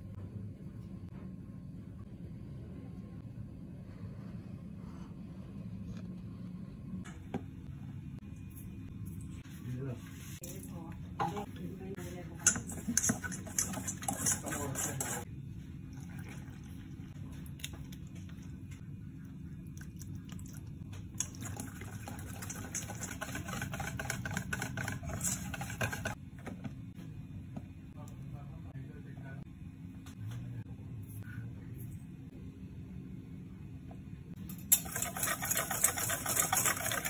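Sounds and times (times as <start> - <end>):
steady low hum: 0.0 - 37.0
spoon scraping in steel bowl: 12.4 - 15.3, 22.4 - 26.2, 34.6 - 37.0.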